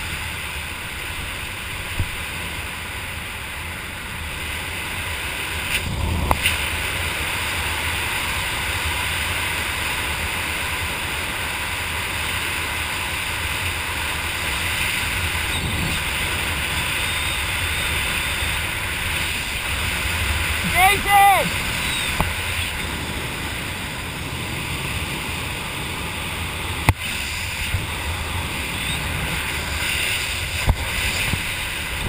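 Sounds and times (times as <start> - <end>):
wind rushing over microphone: 4.0 - 8.5, 13.3 - 32.0.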